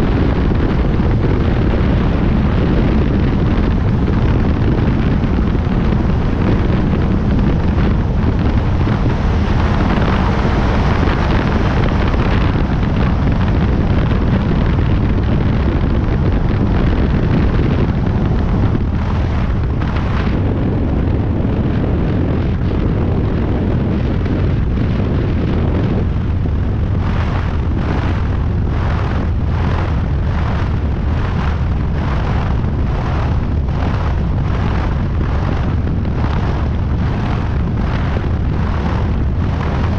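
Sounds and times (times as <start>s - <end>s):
light aircraft engine drone: 0.0s - 39.9s.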